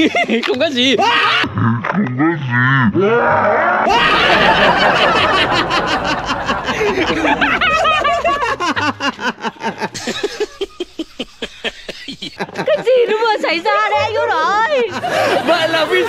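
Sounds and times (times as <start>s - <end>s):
snickering laughter: 3.9s - 13.1s.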